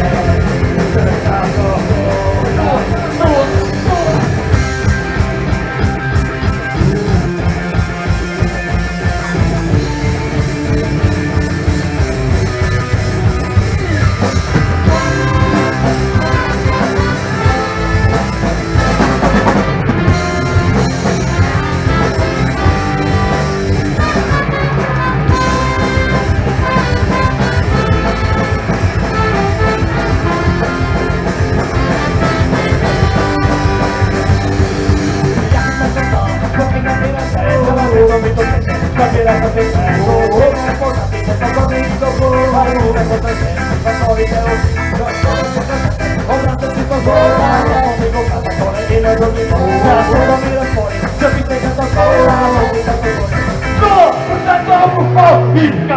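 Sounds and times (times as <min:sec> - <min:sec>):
man singing: 0:00.0 - 0:04.6, 0:13.2 - 0:24.6, 0:34.9 - 0:55.9
ska-punk band playing: 0:00.0 - 0:55.9
brass horn line: 0:12.1 - 0:55.9.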